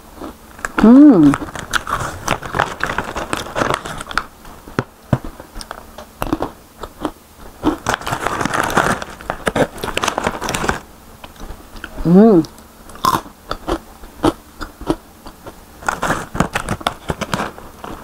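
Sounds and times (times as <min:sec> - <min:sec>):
crunching and chewing chips: 0:00.0 - 0:18.0
paper pouch crinkling: 0:01.3 - 0:04.3, 0:07.8 - 0:10.8.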